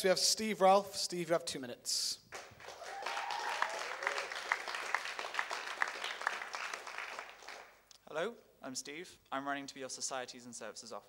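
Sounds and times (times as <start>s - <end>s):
audience applauding: 2.3s - 7.8s
loud hands clapping: 2.3s - 7.8s.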